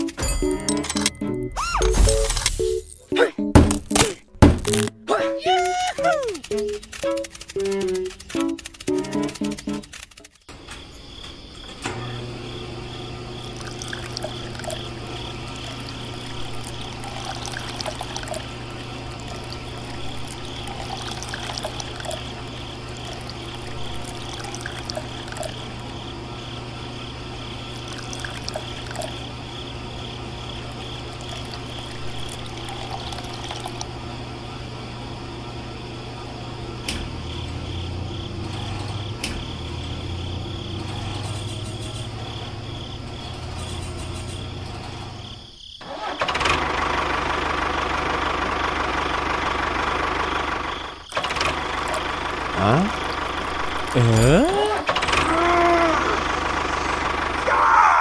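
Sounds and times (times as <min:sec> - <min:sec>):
water pouring onto sand: 0:15.6 - 0:18.5, 0:19.2 - 0:22.3, 0:22.9 - 0:25.6.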